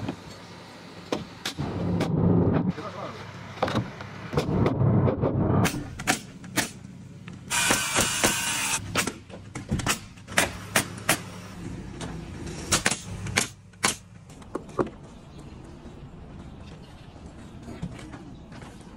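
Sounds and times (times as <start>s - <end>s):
nail gun shots: 7.5s - 9.2s.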